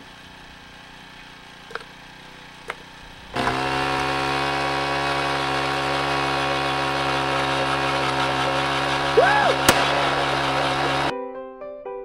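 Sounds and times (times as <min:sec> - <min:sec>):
small gasoline engine running: 0:00.0 - 0:11.1.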